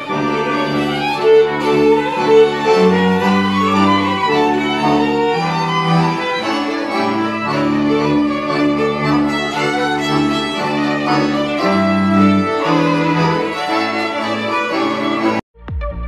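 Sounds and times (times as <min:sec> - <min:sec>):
fiddles and accordion folk band: 0:00.0 - 0:15.4.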